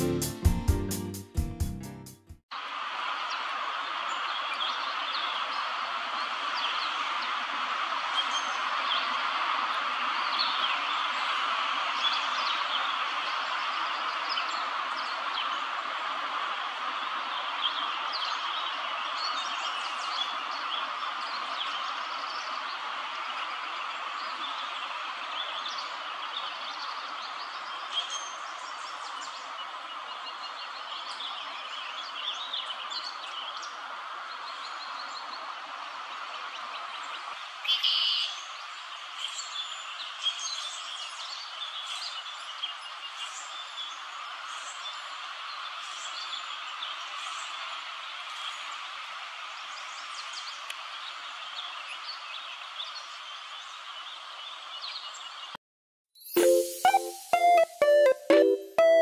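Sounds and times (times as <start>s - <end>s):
songbirds chirping: 16.9s - 55.6s.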